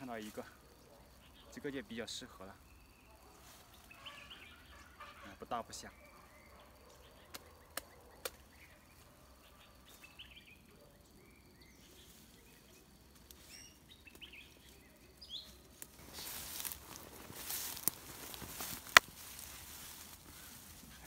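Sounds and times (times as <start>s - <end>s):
footsteps through weeds and brush: 11.8s - 21.0s.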